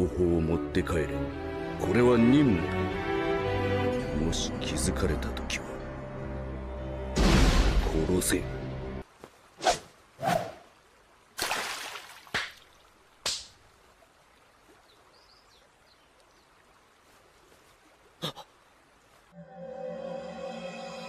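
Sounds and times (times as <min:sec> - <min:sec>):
water splashing: 0:09.5 - 0:19.2.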